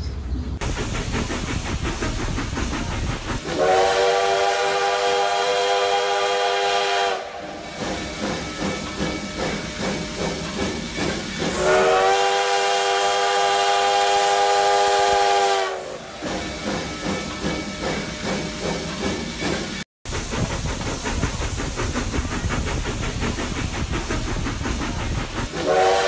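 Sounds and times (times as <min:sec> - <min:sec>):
steam puffing and hissing: 0:00.6 - 0:26.0
steam locomotive whistle: 0:03.4 - 0:08.4, 0:11.4 - 0:16.6, 0:25.5 - 0:26.0.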